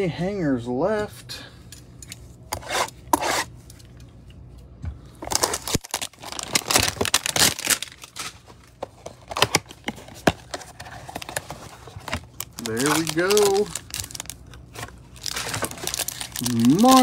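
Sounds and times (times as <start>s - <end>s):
packaging crinkling and tearing: 5.2s - 17.0s.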